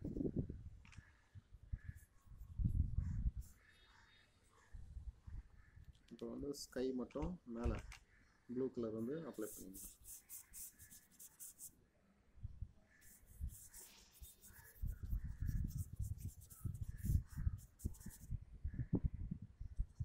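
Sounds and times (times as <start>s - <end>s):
paintbrush scratching on paper: 9.0s - 11.8s, 13.0s - 18.4s.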